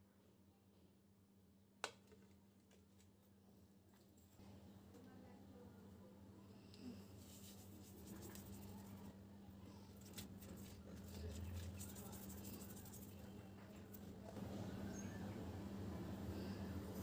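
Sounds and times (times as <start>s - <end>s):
low steady hum: 1.6s - 17.0s
fingers rubbing salt into fish: 7.2s - 9.1s, 9.9s - 14.0s.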